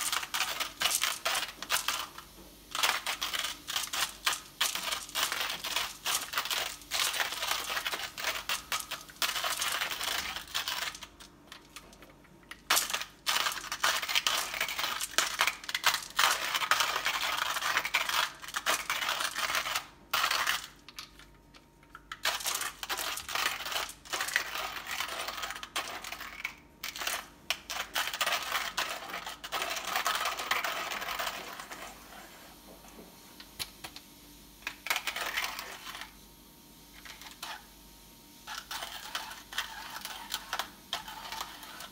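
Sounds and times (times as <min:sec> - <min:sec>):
hand grinder crunching coffee beans: 0:00.0 - 0:11.3, 0:12.5 - 0:20.8, 0:22.1 - 0:31.8.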